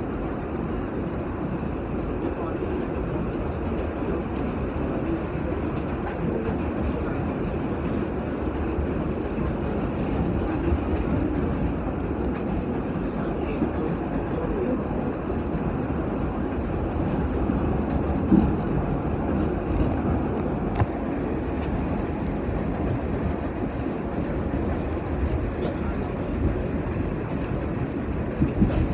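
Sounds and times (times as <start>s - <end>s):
wheels rumbling on rail: 0.0s - 28.9s.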